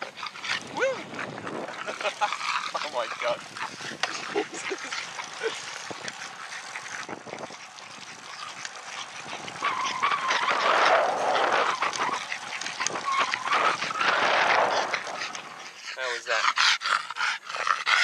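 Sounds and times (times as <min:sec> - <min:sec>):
wind rushing over microphone: 0:00.0 - 0:02.2, 0:02.8 - 0:04.8, 0:07.0 - 0:15.6
bicycle tyre noise: 0:00.0 - 0:17.9.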